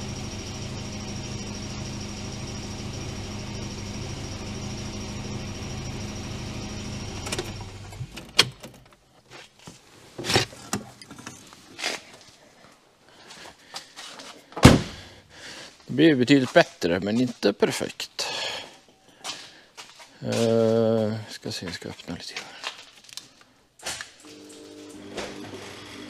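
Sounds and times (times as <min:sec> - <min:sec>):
car engine idling: 0:00.0 - 0:08.4.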